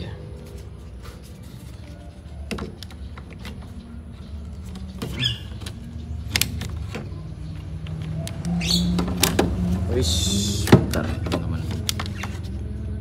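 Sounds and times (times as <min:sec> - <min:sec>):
short high squeaks: 0:05.1 - 0:05.6
clicks and taps of parts handled: 0:10.6 - 0:12.5.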